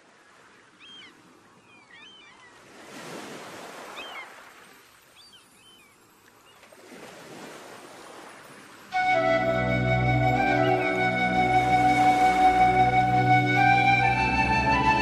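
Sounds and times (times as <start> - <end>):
sea waves washing in: 2.6 - 5.2, 6.2 - 15.0.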